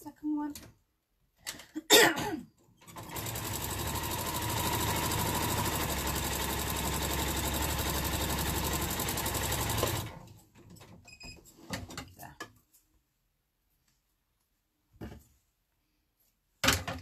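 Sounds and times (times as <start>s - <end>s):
sewing machine stitching: 2.8s - 10.3s.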